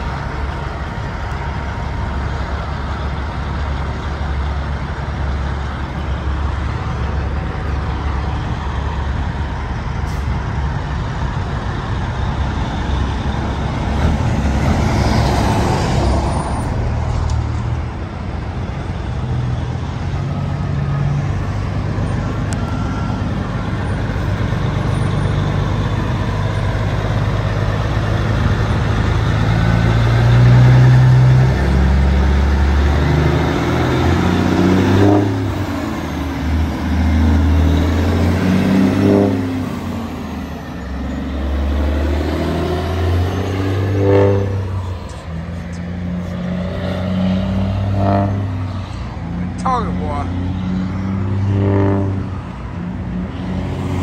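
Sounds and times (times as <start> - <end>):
diesel truck engine accelerating: 0.0 - 54.0.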